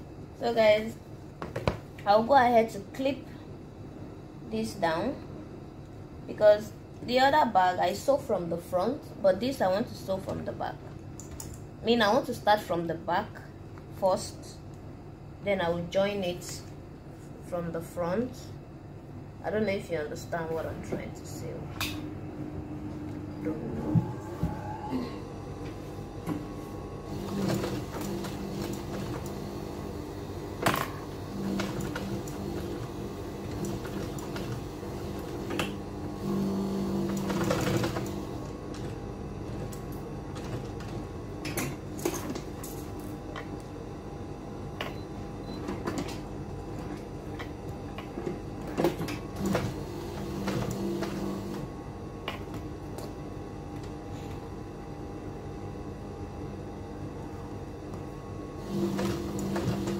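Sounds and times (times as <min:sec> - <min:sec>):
sewing machine motor humming: 0:27.0 - 0:41.4, 0:45.4 - 0:51.7, 0:58.6 - 0:59.9
sewing machine stitching: 0:27.1 - 0:29.8, 0:30.6 - 0:41.1, 0:48.6 - 0:51.7, 0:58.7 - 0:59.9.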